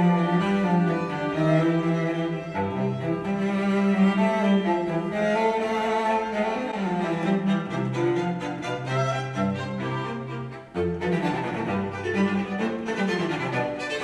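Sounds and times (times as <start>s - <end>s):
cello low held notes: 0.0s - 14.0s
slow classical string music: 0.0s - 14.0s.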